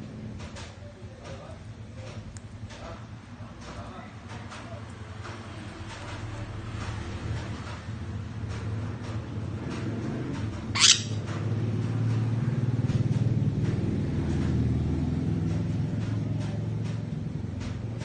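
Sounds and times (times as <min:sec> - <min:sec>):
parrot squawk: 0:10.7 - 0:11.2.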